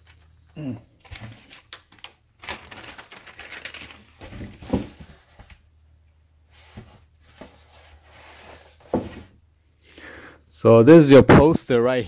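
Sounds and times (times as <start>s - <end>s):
paper and plastic rustling: 0.0s - 5.6s.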